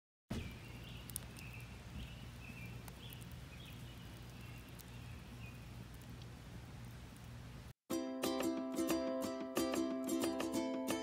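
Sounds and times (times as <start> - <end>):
burning logs crackling: 0.3 - 7.7.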